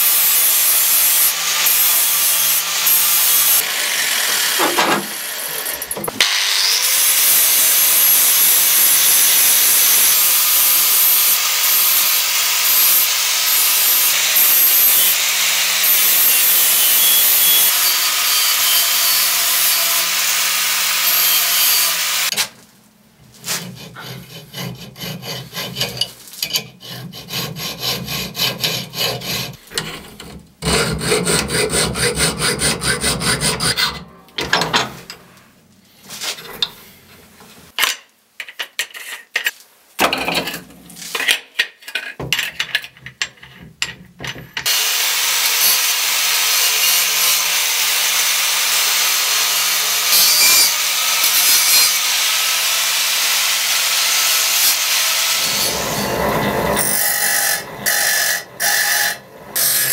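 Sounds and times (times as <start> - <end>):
angle grinder grinding steel: 0.0 - 22.5, 44.6 - 59.9
hand file rasping on steel: 23.4 - 34.0.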